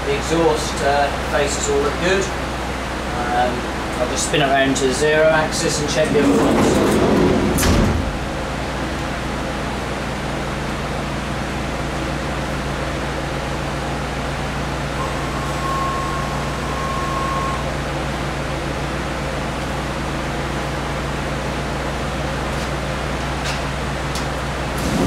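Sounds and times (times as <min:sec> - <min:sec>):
machine humming: 0:05.3 - 0:22.2
faint machine whine: 0:14.8 - 0:19.6.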